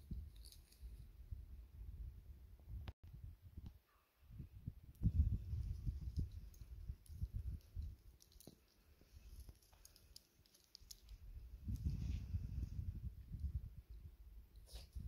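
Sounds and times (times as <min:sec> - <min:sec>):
wind rumbling on microphone: 0:00.0 - 0:09.6, 0:10.7 - 0:15.0
faint small clicks: 0:05.7 - 0:11.9.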